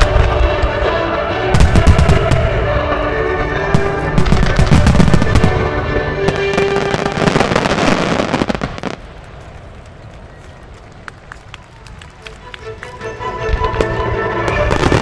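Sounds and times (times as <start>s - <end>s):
music: 0.0s - 8.2s, 12.0s - 15.0s
crackling fireworks: 0.0s - 15.0s.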